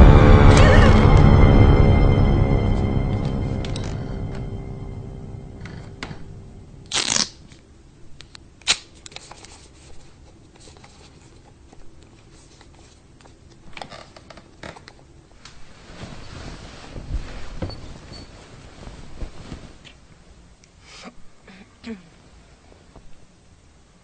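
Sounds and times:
rustling: 15.4s - 20.4s.

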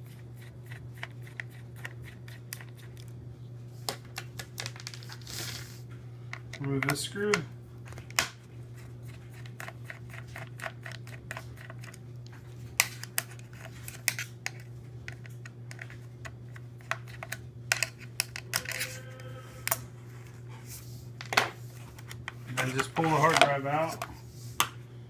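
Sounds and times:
low hum: 17.3s - 22.9s.

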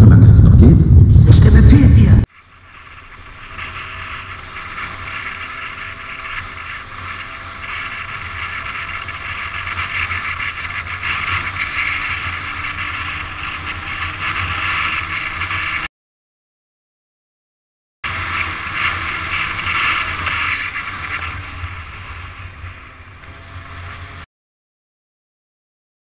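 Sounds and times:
scooter engine running: 2.3s - 15.9s, 18.0s - 24.3s.

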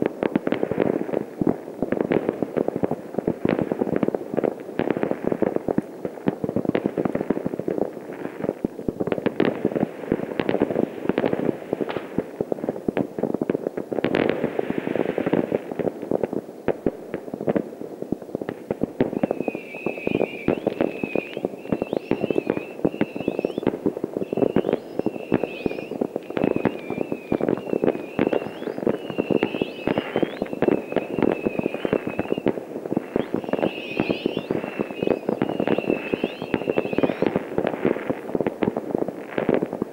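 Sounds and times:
distant fireworks crackling and banging: 0.0s - 39.9s
high wavering whistle: 19.1s - 37.4s.

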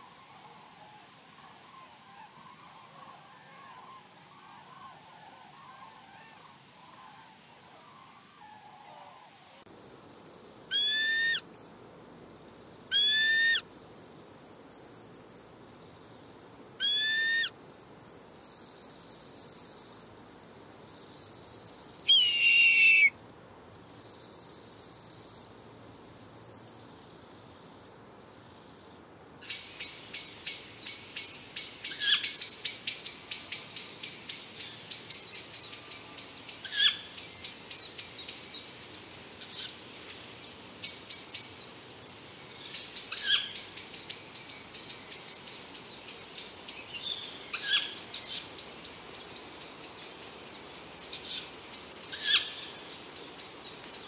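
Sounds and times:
harsh bird calls: 22.1s - 23.1s.

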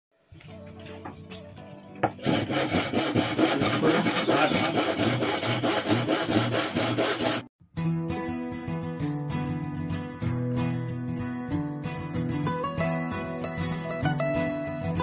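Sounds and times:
hand saw cutting wood: 2.0s - 7.5s.

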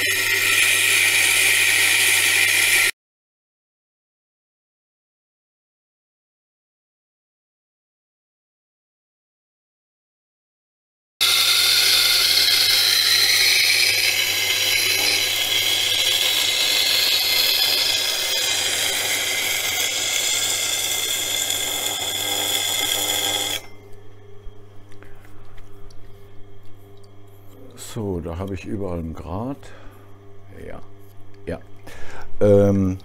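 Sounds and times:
knife grinding on wheel: 0.0s - 2.9s, 11.2s - 24.1s
motor humming: 0.0s - 2.9s, 11.2s - 28.6s.

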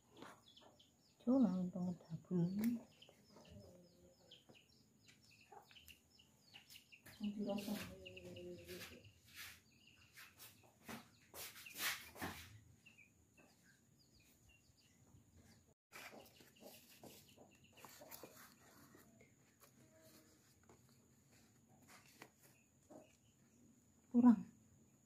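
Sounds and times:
chickens clucking: 16.0s - 18.7s.

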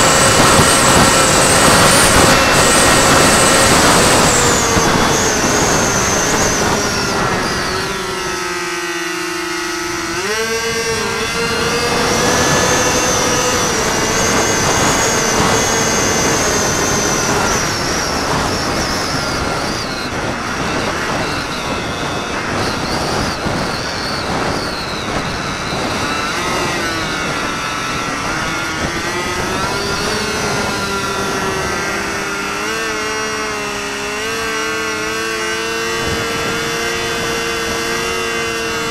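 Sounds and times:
model plane motor whining: 0.0s - 38.9s
wind rushing across microphone: 0.0s - 38.9s.

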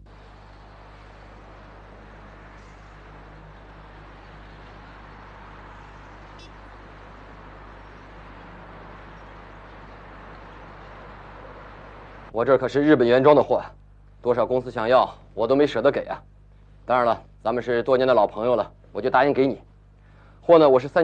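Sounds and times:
low hum: 0.0s - 12.8s.

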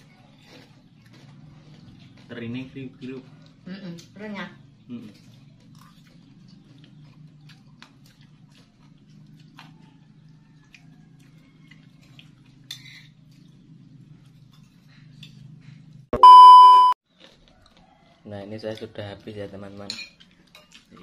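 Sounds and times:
faint chewing: 0.0s - 16.1s, 17.1s - 21.0s
metal spoon scraping ceramic plate: 12.7s - 13.2s.

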